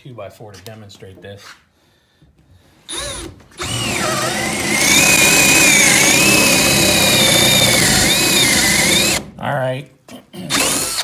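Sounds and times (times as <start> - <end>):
power drill boring through wood: 2.9 - 9.3, 10.5 - 11.0.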